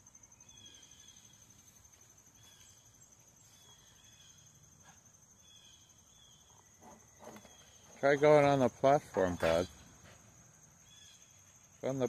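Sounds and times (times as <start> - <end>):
crickets trilling: 0.0 - 12.0
outdoor background noise: 0.0 - 12.0.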